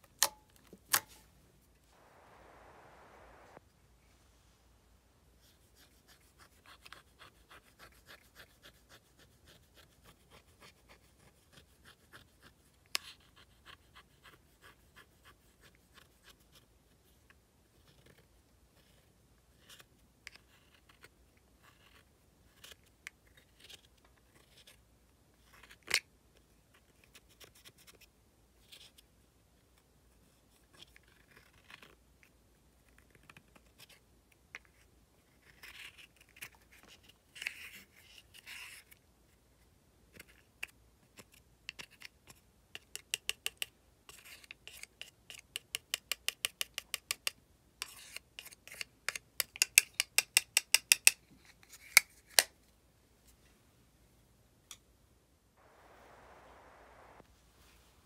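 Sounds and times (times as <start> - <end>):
spatula scraping powder makeup: 47.8 - 51.0.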